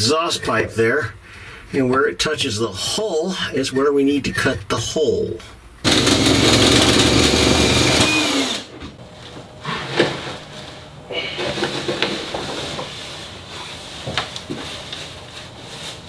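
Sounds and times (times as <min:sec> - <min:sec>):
power tool motor whining down: 0:05.8 - 0:08.7.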